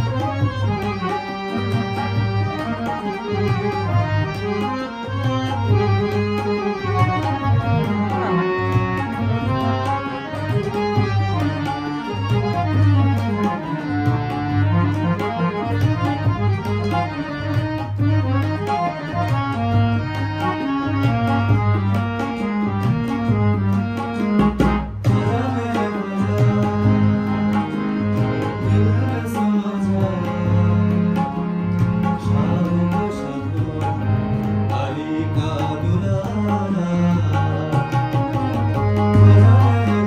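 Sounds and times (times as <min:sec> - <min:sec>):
harmonium chords and melody: 0:00.0 - 0:40.0
tabla rhythm: 0:00.0 - 0:40.0.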